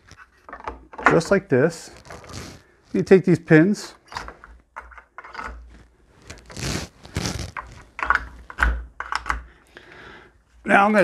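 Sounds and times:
sharp clicks and light knocks: 7.6 - 9.5.

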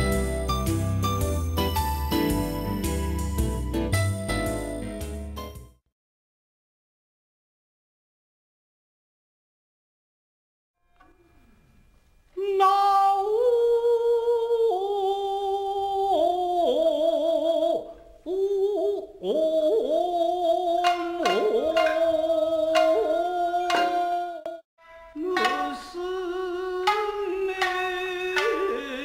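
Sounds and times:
voice singing long wavering notes: 12.4 - 29.0
shamisen plucks: 20.5 - 29.0.

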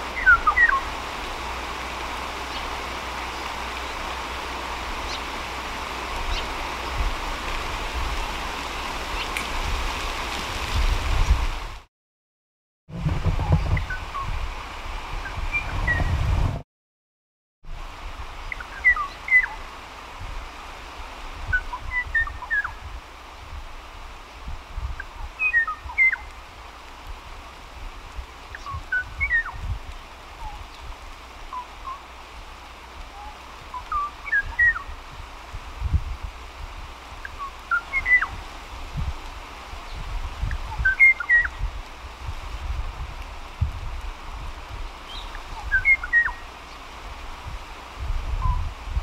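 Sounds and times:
bird whistling song: 0.2 - 0.8, 18.5 - 19.6, 21.5 - 22.8, 25.4 - 26.3, 28.5 - 29.6, 33.2 - 34.9, 37.3 - 38.4, 40.7 - 41.6, 45.1 - 46.5.

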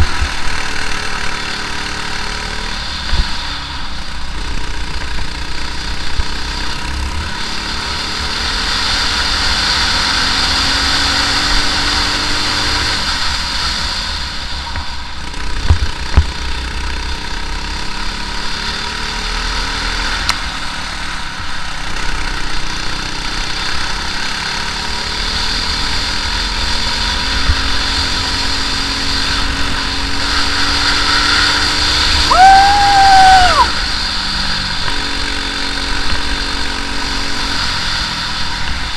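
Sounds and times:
kart engine revving: 0.0 - 38.9
high-pitched squeal: 30.1 - 34.2.

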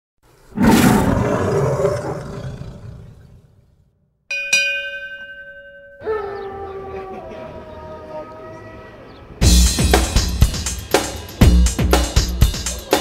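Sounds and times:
loud roar: 0.5 - 3.5
ringing bell-like strike: 4.3 - 6.2
music: 7.9 - 13.0.

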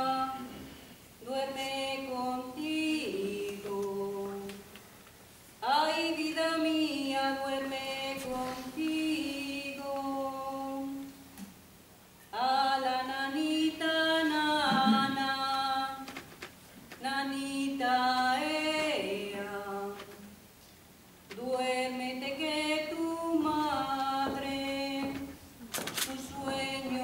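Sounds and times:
woman singing a lullaby: 0.0 - 0.6, 1.2 - 4.7, 5.6 - 11.2, 17.0 - 20.3, 21.3 - 25.4, 26.0 - 27.0.

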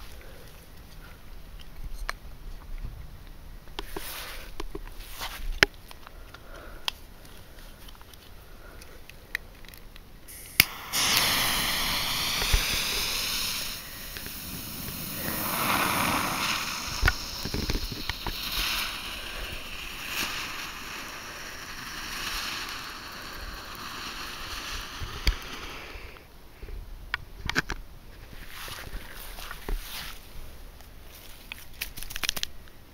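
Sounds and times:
firework crackles: 10.3 - 26.3
firework fountain hissing: 10.3 - 26.3.

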